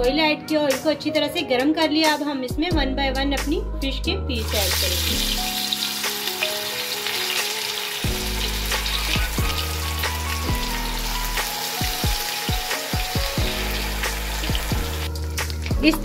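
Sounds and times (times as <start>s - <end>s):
fish sizzling in hot oil: 4.4s - 16.0s.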